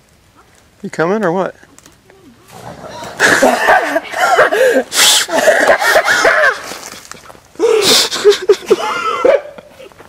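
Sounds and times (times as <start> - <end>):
woman laughing hard: 2.9 - 6.8, 7.6 - 10.0
sharp gasping breaths: 4.2 - 6.2, 7.6 - 8.4.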